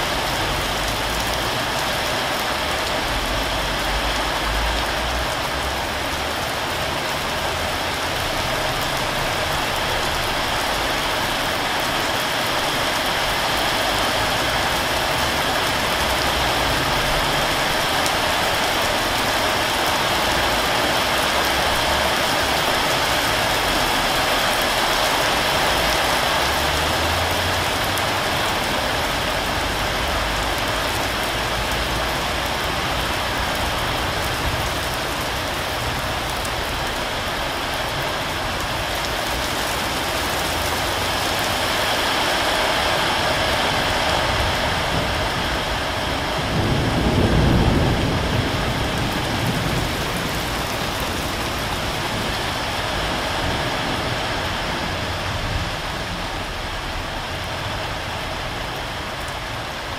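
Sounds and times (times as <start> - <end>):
heavy rain downpour: 0.0 - 59.9.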